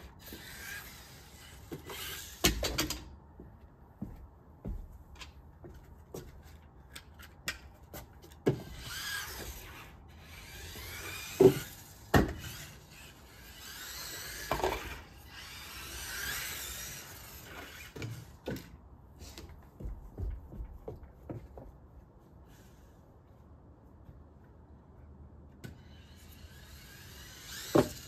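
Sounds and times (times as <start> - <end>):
toy car motor whine: 0.2 - 2.6, 8.6 - 18.3, 25.8 - 28.0.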